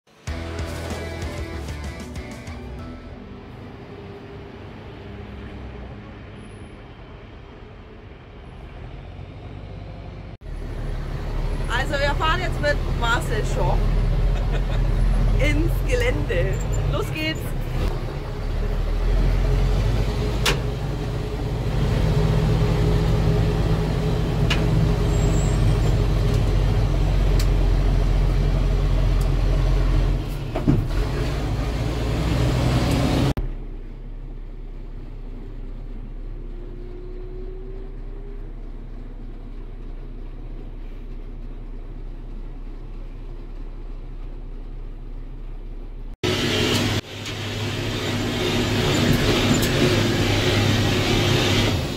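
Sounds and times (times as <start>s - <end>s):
truck engine running under load: 8.0s - 51.9s
knocks and rattles from cab: 30.4s - 31.1s.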